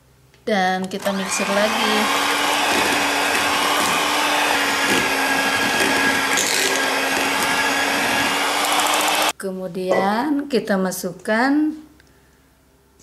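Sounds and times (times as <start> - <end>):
electric hand mixer whine: 1.0 - 9.3.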